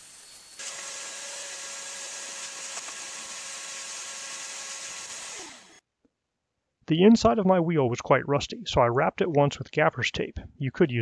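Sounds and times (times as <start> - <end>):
vacuum cleaner running: 0.0 - 5.8.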